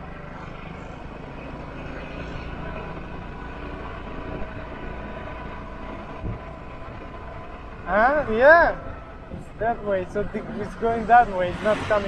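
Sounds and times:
scooter engine: 0.0s - 8.0s
wind and road noise: 0.0s - 12.0s.

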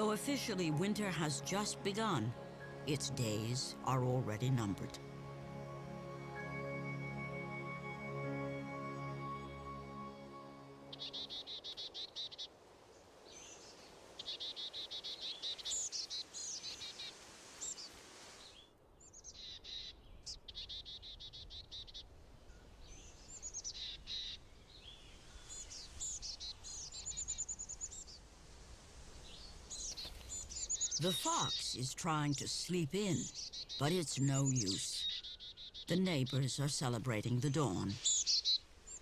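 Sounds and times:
bird chirps: 10.9s - 12.5s, 13.3s - 28.2s, 29.2s - 39.0s
songbird trills: 10.9s - 28.3s, 29.1s - 39.0s.

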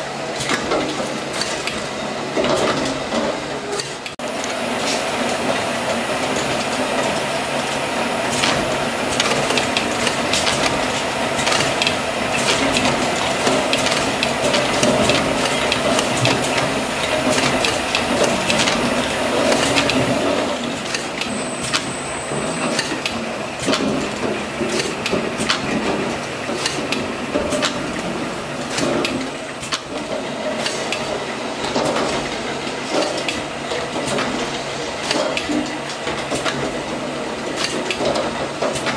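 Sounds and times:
labelling machine clatter: 0.3s - 38.9s
sharp clicks and knocks: 20.8s - 33.4s.

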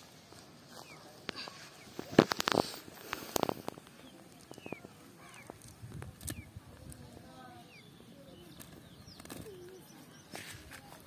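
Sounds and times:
small birds chirping: 0.0s - 11.0s
cast net clicking and rustling: 8.4s - 11.0s.

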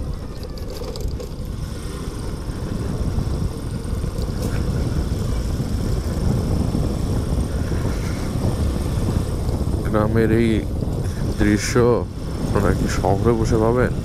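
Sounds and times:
motorcycle engine rumble: 0.0s - 14.0s
wind: 0.0s - 14.0s.

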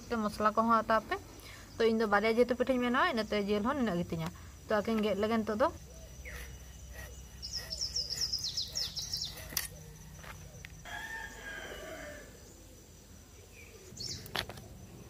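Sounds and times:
small bird chirping: 5.0s - 10.9s, 13.4s - 15.0s
rooster crowing: 9.9s - 12.4s.

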